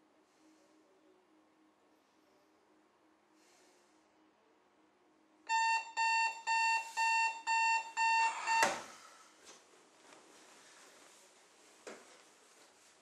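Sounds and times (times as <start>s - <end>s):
alarm clock beeping: 5.5s - 8.9s.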